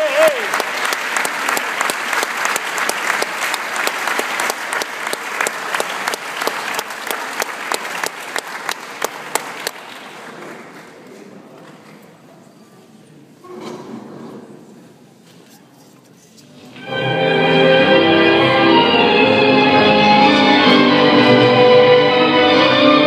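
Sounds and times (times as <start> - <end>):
audience applauding: 0.0 - 11.0
loud close hand claps: 0.0 - 11.0.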